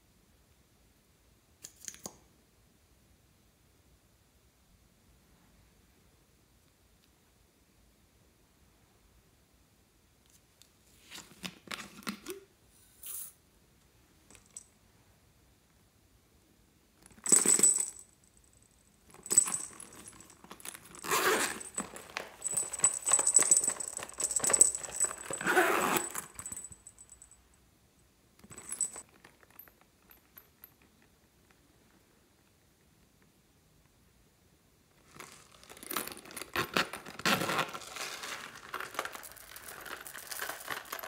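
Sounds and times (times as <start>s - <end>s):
small pieces rattling in plastic cases: 37.7s - 41.0s.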